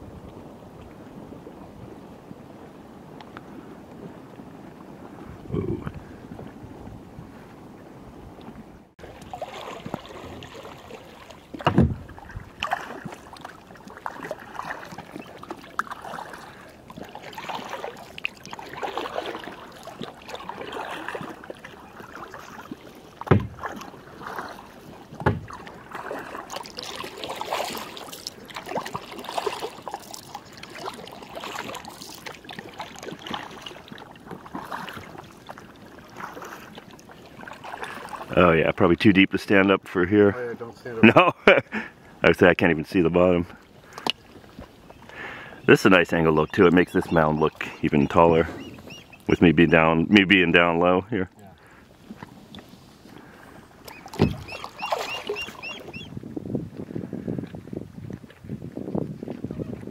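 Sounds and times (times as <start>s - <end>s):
mud bubbling and sputtering: 5.2s - 7.4s, 9.0s - 39.0s, 44.8s - 52.6s
sharp knocks: 11.6s - 12.0s, 23.3s - 23.6s.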